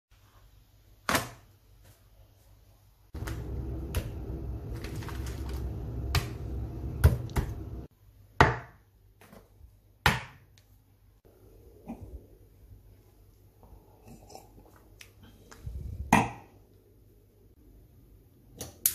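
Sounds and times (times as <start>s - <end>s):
low hum: 3.2s - 7.9s.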